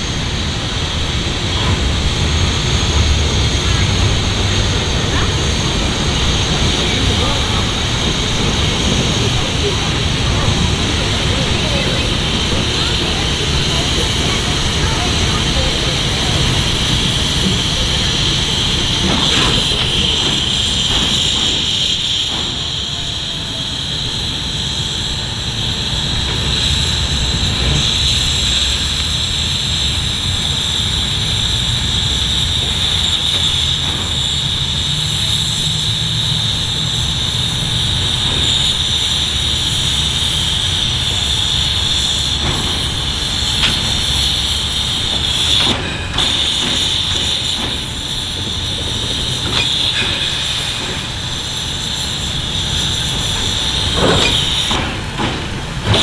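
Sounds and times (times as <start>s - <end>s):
locomotive running gear rumble: 0.0s - 56.0s
steam hissing: 0.0s - 56.0s.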